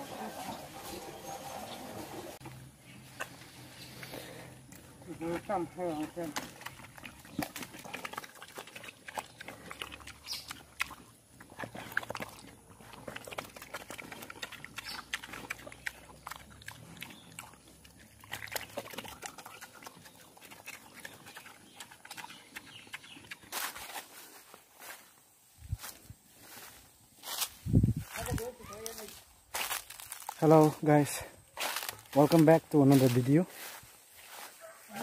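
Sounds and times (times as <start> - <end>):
pig eating from metal bowl: 4.7 - 23.8.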